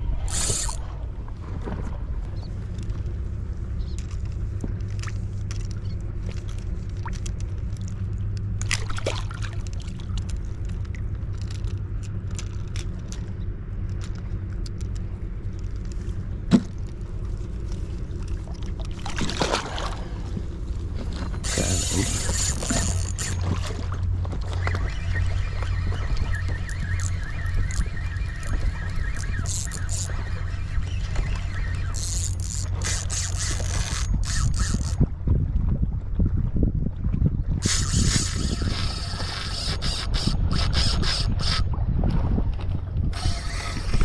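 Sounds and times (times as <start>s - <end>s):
fishing reel whirring: 0.0s - 1.0s, 2.7s - 8.6s, 9.6s - 16.2s, 21.2s - 35.1s, 37.6s - 41.7s, 43.1s - 44.0s
low wind rumble: 0.0s - 44.0s
water sloshing against a boat: 0.0s - 44.0s
small clicks: 0.3s - 0.8s, 3.8s - 8.8s, 9.6s - 17.0s.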